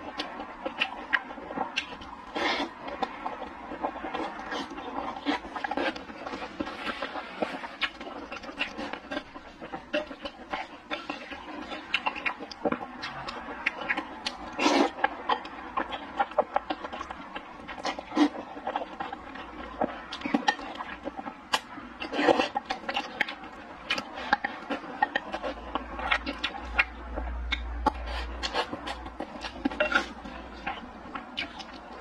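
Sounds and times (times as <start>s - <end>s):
wet chewing and mouth smacking: 0.0s - 32.0s
slurping noodles: 0.2s - 17.1s.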